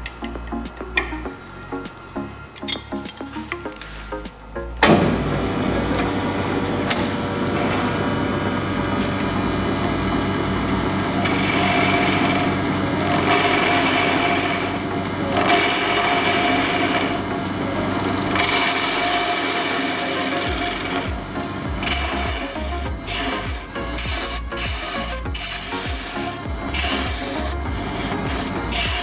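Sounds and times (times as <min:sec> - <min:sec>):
wood lathe running: 0:03.8 - 0:29.0
gouge cutting wood: 0:10.9 - 0:17.3.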